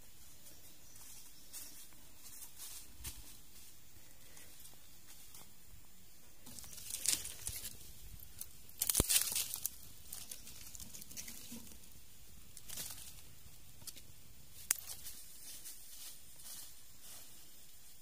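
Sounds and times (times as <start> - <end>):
twigs and leaves crackling: 0.4 - 5.6, 6.4 - 18.0
twig snapping: 8.4 - 11.6, 14.6 - 15.0.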